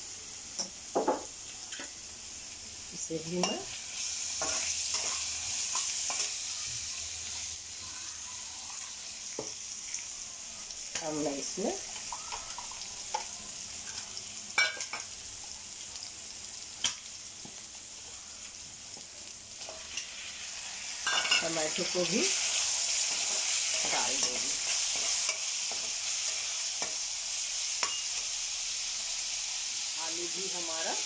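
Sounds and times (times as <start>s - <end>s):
onion sizzling in oil: 0.0s - 31.0s
metal spoon clinking on pan: 14.6s - 15.1s, 21.0s - 21.5s, 27.8s - 28.2s.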